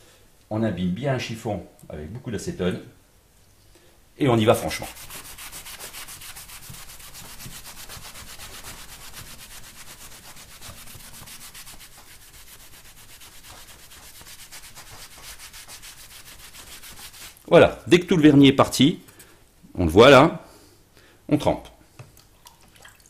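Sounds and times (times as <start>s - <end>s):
cloth rag scrubbing metal sheet: 4.5s - 17.4s.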